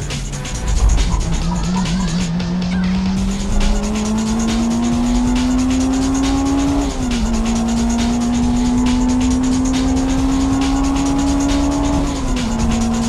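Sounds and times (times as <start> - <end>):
car engine accelerating: 0.0 - 13.0.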